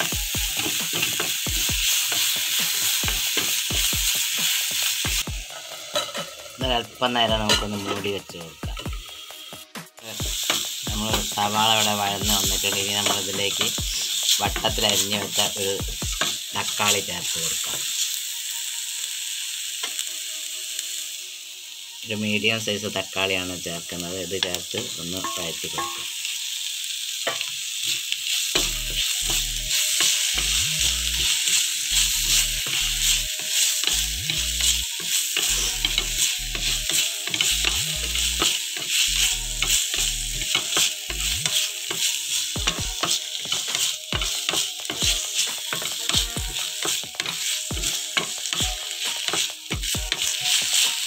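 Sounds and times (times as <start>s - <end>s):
onions sizzling in frying pan: 0.0s - 51.0s.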